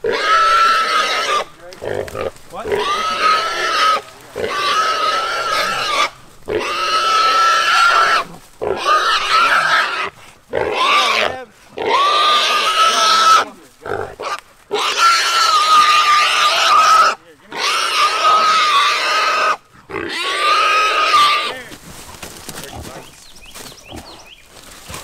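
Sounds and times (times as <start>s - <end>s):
hog squealing loudly: 0.1s - 1.5s, 2.7s - 13.5s, 14.2s - 21.6s.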